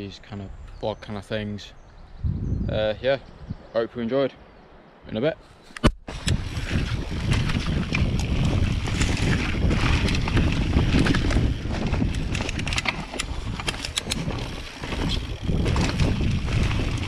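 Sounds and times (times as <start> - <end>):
wind on microphone: 2.0 - 3.7, 6.0 - 17.0
bike rattling: 6.1 - 17.0
tyres rolling on dirt: 6.1 - 17.0.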